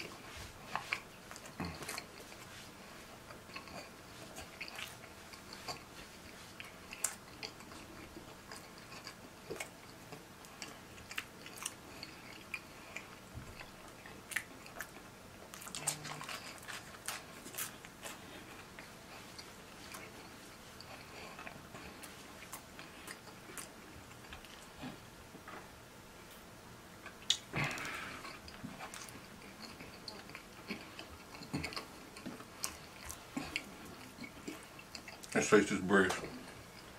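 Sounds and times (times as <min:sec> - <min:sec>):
chewing pizza: 0:00.0 - 0:25.7, 0:26.3 - 0:36.9
mouth clicks and smacks: 0:27.0 - 0:35.4.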